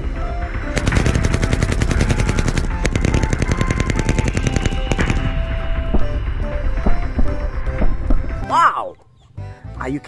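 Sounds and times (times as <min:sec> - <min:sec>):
rapid automatic rifle fire: 0:00.8 - 0:05.5.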